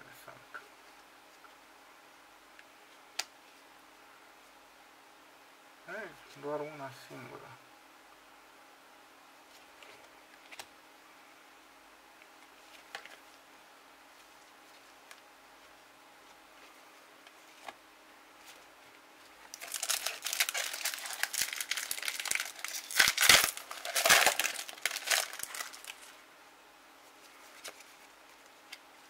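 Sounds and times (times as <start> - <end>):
foil pack crinkling and tearing: 19.5 - 26.1.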